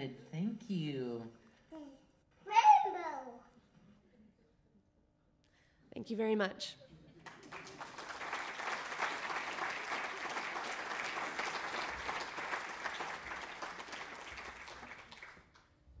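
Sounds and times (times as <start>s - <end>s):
audience applauding: 7.2s - 15.7s.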